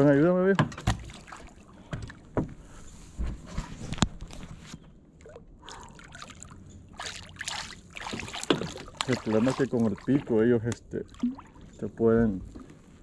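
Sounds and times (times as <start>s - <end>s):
water trickling and dripping: 5.2s - 12.8s.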